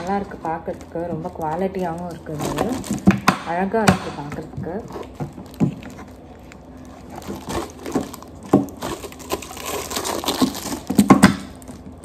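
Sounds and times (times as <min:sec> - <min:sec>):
rustling: 0:04.7 - 0:12.0.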